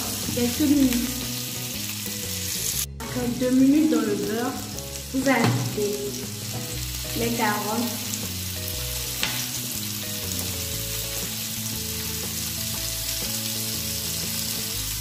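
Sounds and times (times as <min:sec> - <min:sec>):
food sizzling in a pan: 0:00.0 - 0:15.0
sharp tap: 0:09.2 - 0:09.4.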